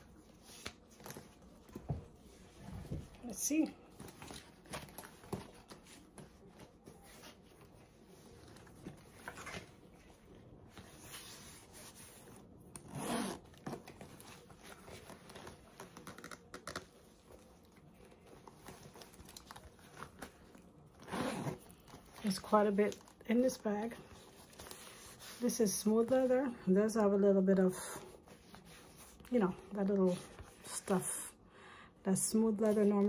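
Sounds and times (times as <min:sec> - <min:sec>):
zipper: 0:12.8 - 0:13.8, 0:21.0 - 0:21.8
leather bag rustling: 0:18.2 - 0:23.2.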